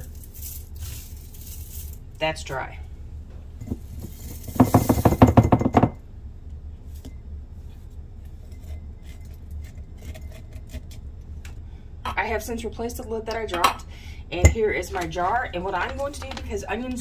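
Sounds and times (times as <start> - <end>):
dried onion rattling into glass jar: 0.0 - 2.0, 3.6 - 5.9.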